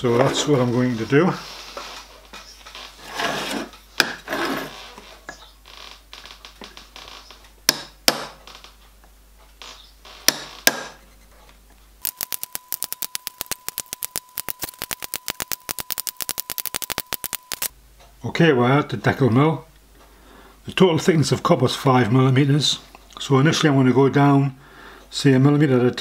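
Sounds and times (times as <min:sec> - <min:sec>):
scraping on metal: 0:03.0 - 0:05.0
fast even ticking with tone: 0:12.0 - 0:17.7.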